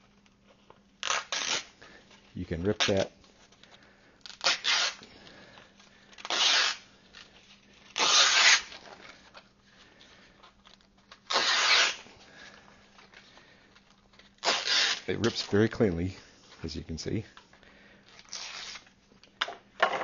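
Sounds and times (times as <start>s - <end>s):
sanding belt tearing by hand: 1.0s - 1.7s, 4.3s - 5.0s, 6.2s - 6.9s, 7.9s - 8.8s, 11.3s - 12.0s, 14.4s - 15.4s, 18.3s - 18.8s.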